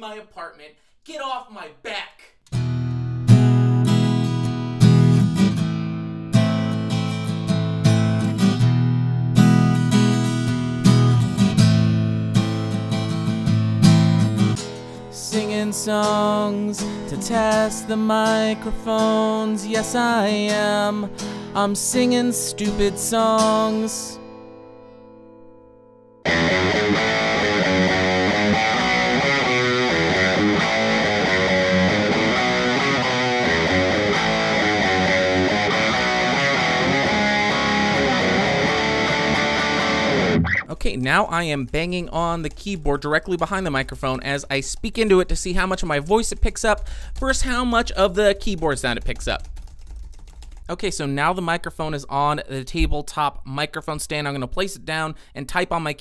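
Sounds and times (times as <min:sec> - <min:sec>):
acoustic guitar strumming chords: 0:02.5 - 0:40.7.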